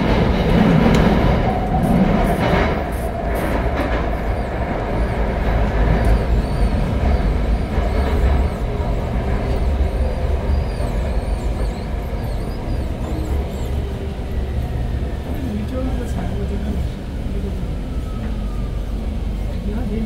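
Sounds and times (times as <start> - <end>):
train interior rumble: 0.0 - 20.0.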